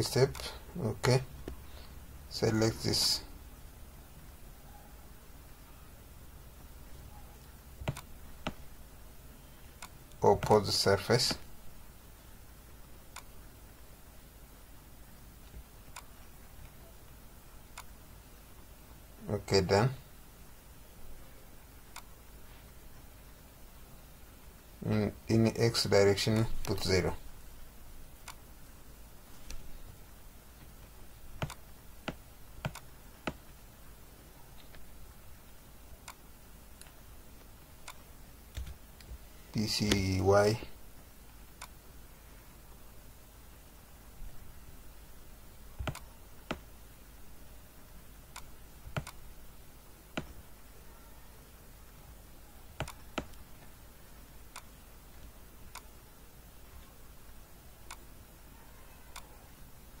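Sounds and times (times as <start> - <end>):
faint room hiss: 0.0 - 60.0
mouse and keyboard clicks: 7.4 - 8.6, 31.4 - 33.4, 45.8 - 46.6, 48.4 - 49.2, 52.8 - 53.4.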